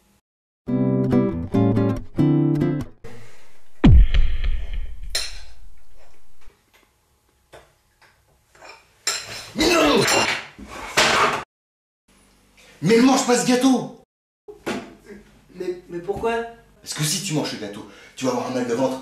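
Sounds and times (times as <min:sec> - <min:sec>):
loud burst of noise: 0:03.7 - 0:06.5
sharp thud: 0:03.8 - 0:06.5.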